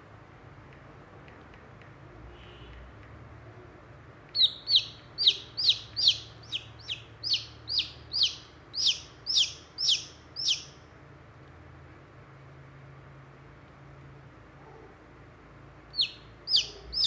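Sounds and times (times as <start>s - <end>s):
chick peeping: 4.3s - 10.8s, 15.9s - 17.0s.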